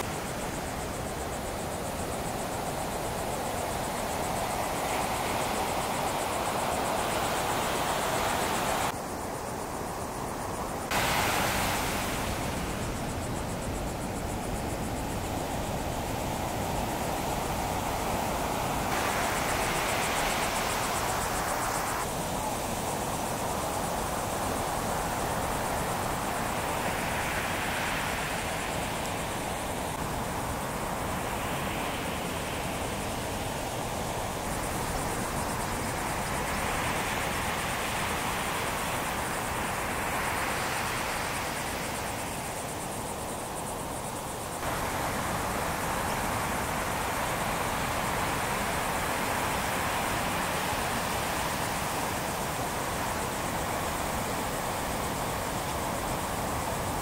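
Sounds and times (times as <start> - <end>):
waves breaking: 10.9 - 42.1.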